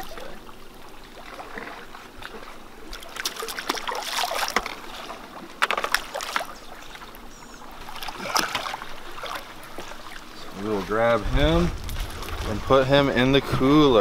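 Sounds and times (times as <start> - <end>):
fish splashing water: 0.0 - 11.0.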